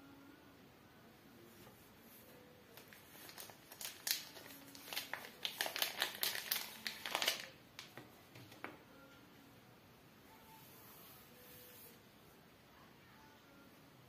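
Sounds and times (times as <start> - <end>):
plastic film peeled off crinkling: 2.8 - 8.0.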